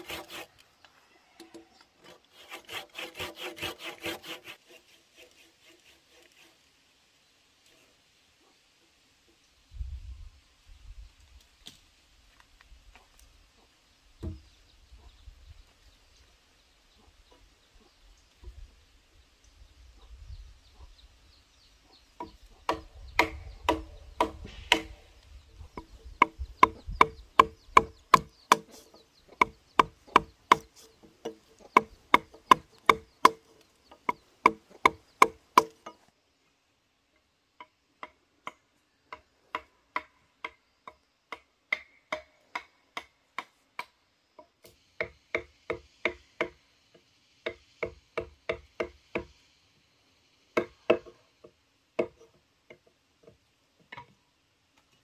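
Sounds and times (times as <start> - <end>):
chopping strikes on bamboo: 22.2 - 25.1, 25.8 - 28.8, 29.4 - 36.0, 38.0 - 40.6, 41.3 - 44.0, 44.6 - 46.6, 47.4 - 49.3, 50.6 - 51.2.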